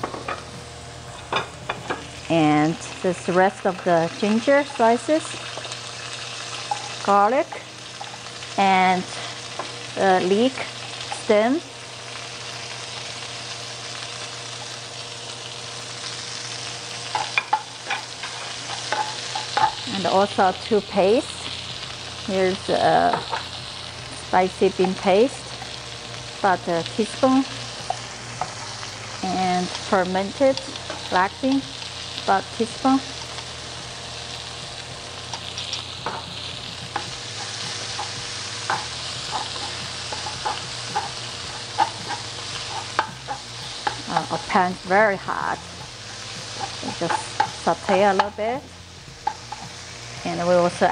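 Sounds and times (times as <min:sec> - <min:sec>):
vegetables sizzling in hot oil: 0:00.0 - 0:50.9
spatula scraping a wok: 0:17.0 - 0:19.9, 0:34.4 - 0:48.4.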